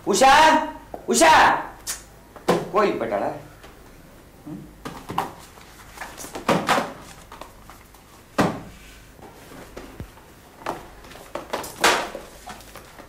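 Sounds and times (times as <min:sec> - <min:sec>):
books knocking on a bookshelf: 0:08.4 - 0:08.7.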